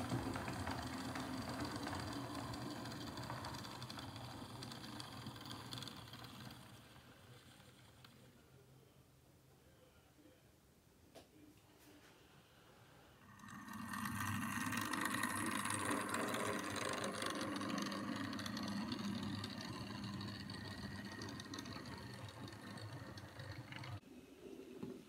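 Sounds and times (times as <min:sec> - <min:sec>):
model train motor whirring: 0:00.0 - 0:08.3, 0:13.2 - 0:24.0.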